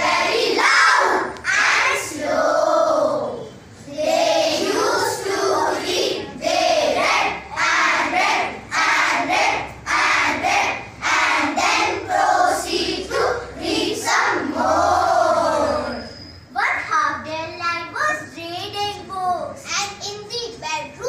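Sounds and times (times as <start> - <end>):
children reciting in unison: 0.0 - 16.1.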